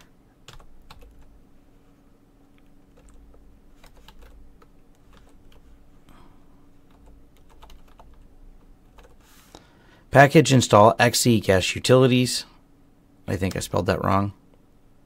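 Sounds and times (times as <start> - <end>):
computer keyboard typing: 0.5 - 1.3, 2.7 - 5.6, 6.9 - 9.2.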